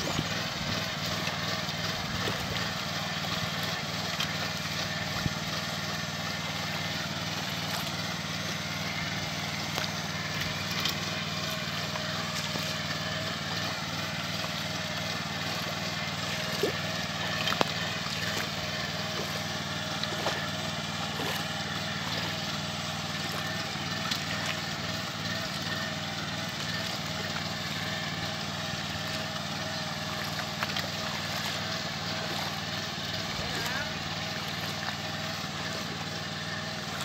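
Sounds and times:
small engine running: 0:00.0 - 0:37.0.

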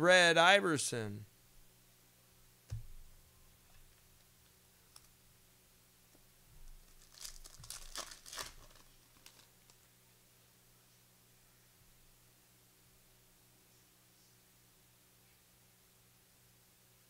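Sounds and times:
soft thump: 0:02.7 - 0:03.0
foil wrapper crinkling and tearing: 0:06.7 - 0:09.8.

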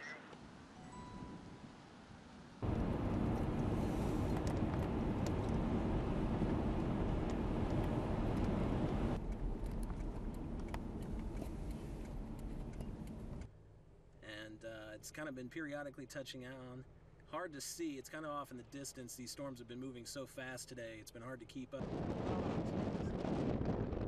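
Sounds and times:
wind rushing over microphone: 0:02.6 - 0:12.3, 0:21.8 - 0:24.0.

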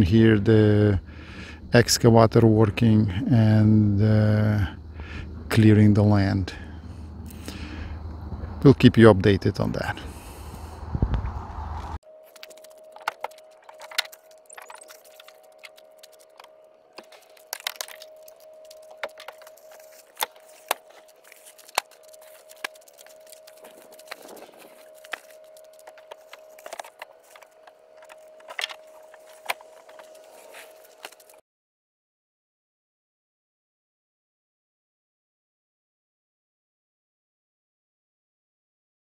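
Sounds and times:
steady faint whine: 0:00.0 - 0:31.4
foam boards knocking and crackling: 0:12.3 - 0:31.3.

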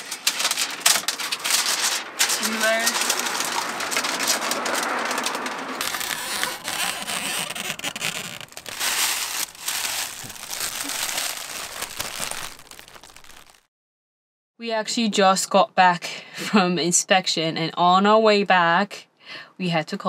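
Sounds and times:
plastic film crackling and crinkling: 0:00.0 - 0:13.7.

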